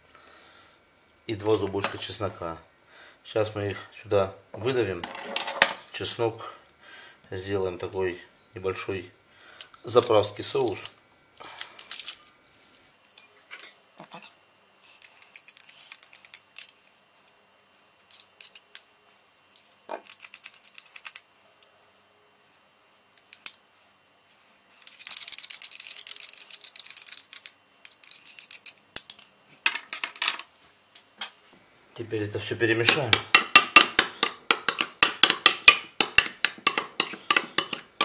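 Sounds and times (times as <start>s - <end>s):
garlic press crushing garlic: 32.8s - 38.0s
knife scraping garlic press: 32.8s - 38.0s.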